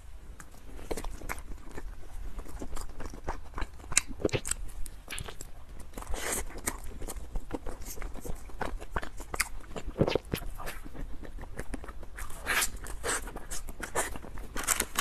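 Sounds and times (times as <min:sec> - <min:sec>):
biting and chewing: 0:00.3 - 0:15.0
mouth clicks and smacks: 0:02.8 - 0:14.2.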